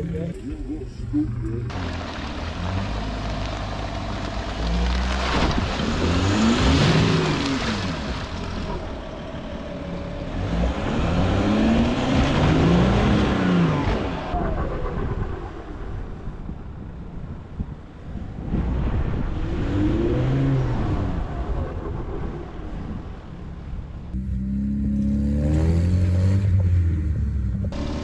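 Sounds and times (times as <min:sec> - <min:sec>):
off-road engine revving: 0:00.0 - 0:14.4, 0:18.4 - 0:22.4, 0:24.1 - 0:28.0
tyres working through mud: 0:00.0 - 0:16.7, 0:17.3 - 0:28.0.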